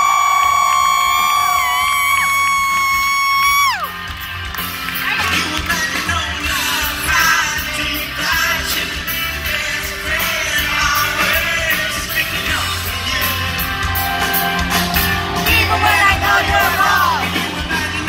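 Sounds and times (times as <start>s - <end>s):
rock band playing: 0.0s - 18.0s
man singing: 5.0s - 14.3s, 15.3s - 18.0s.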